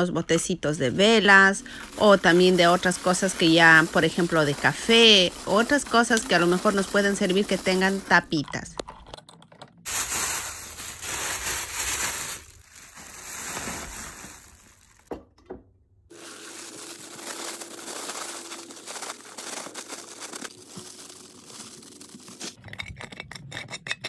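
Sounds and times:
plastic bag crinkling: 1.4 - 8.3, 9.8 - 15.1, 16.1 - 22.6.

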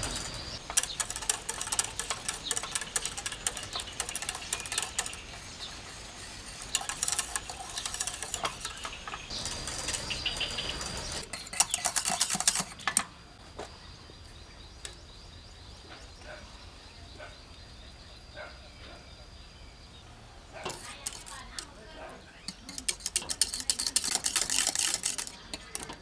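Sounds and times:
whisk clattering in saucepan: 0.7 - 10.1, 11.2 - 12.8, 20.7 - 21.7, 22.5 - 26.0.

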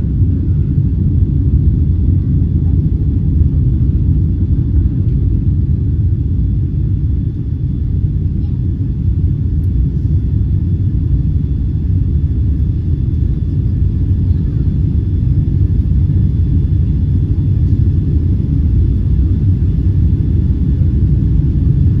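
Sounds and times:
jet engines and rushing air: 0.0 - 22.0.

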